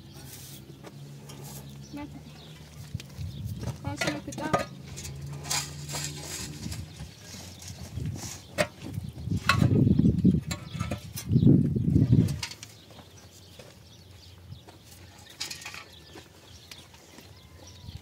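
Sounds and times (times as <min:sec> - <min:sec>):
concrete blocks clinking: 0:03.8 - 0:09.7, 0:15.1 - 0:16.2.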